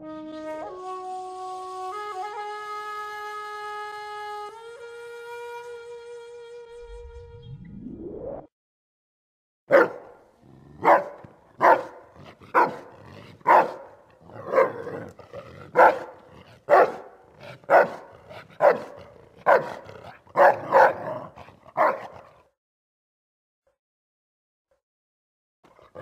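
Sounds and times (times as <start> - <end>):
dog barking deeply: 9.7 - 22.5, 25.7 - 26.0.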